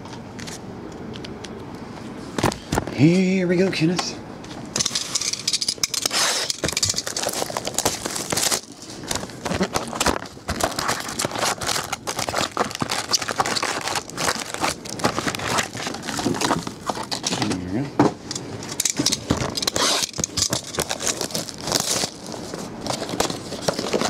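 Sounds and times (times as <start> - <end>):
foil packs crinkling: 4.8 - 17.8, 18.6 - 24.0
cardboard tearing and crinkling: 6.0 - 17.6, 18.9 - 24.0.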